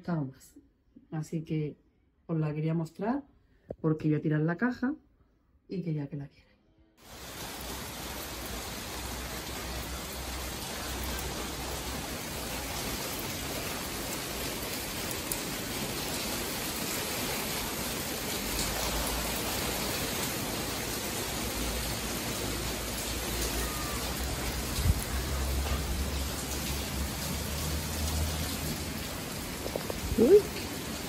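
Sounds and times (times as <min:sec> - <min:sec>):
steady rain falling: 0:07.0 - 0:31.0.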